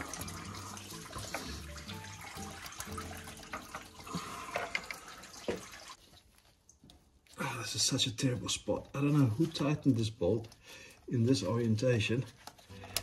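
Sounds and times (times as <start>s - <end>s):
background music: 0.0s - 5.9s, 11.1s - 13.0s
coolant trickling and dripping: 0.0s - 7.9s.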